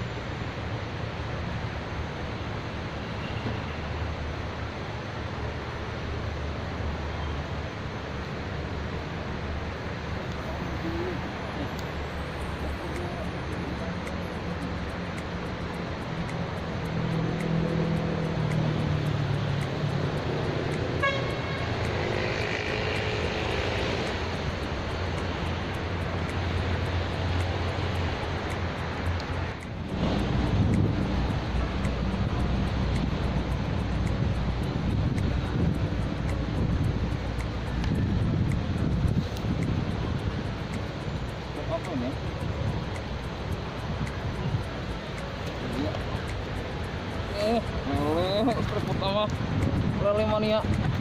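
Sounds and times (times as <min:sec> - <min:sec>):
background hiss: 0:00.0 - 0:51.0
distant traffic rumble: 0:00.0 - 0:51.0.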